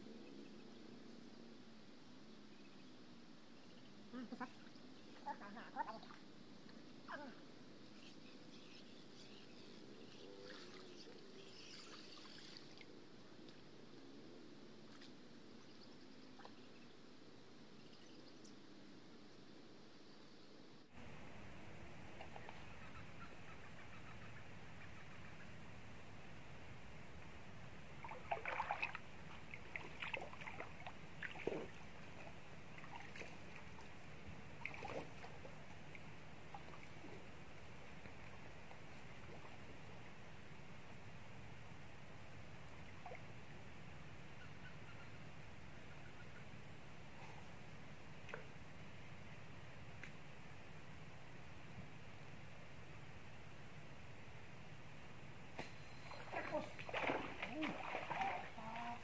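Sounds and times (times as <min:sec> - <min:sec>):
water sloshing and splashing: 0:28.0 - 0:39.9, 0:56.0 - 0:59.0.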